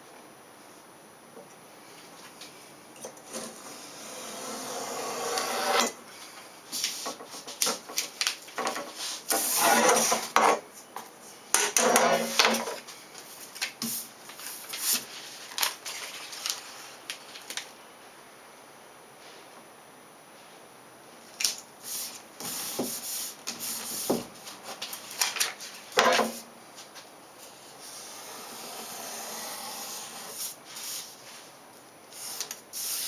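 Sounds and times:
ruler scraping on wooden table: 3.3 - 5.9, 9.3 - 10.6, 11.6 - 12.7, 27.9 - 30.4
paper rustling: 13.2 - 17.7, 22.4 - 27.6.

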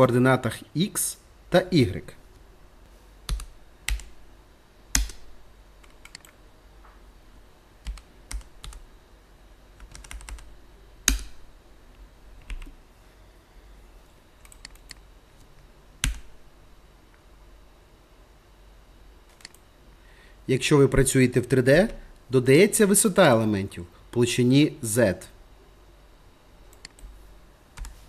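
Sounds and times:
keyboard keystrokes: 3.3 - 4.2, 5.8 - 6.4, 19.3 - 19.6
mouse clicks: 26.7 - 27.1.

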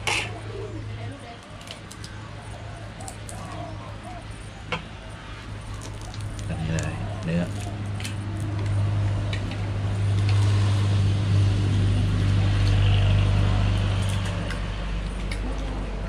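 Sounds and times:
low engine hum: 3.7 - 16.0.

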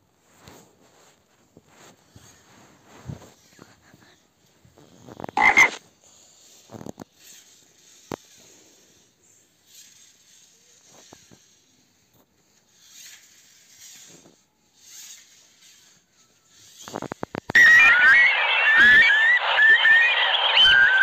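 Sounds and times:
frog croaking: 5.4 - 5.8.

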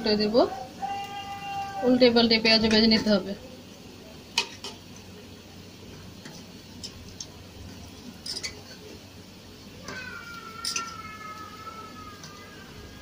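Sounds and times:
fritters deep-frying in hot oil: 0.0 - 13.0.

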